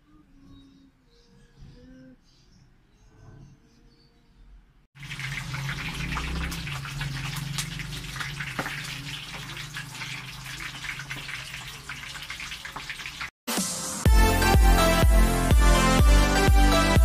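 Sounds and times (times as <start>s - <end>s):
chicken sizzling in hot oil: 5.0s - 13.4s.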